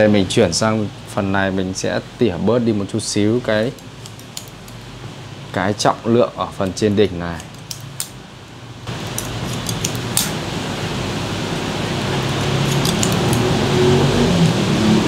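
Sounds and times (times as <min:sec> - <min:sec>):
scissors snipping hair: 0:03.5 - 0:04.8, 0:06.6 - 0:08.2, 0:09.0 - 0:10.4, 0:12.3 - 0:13.5.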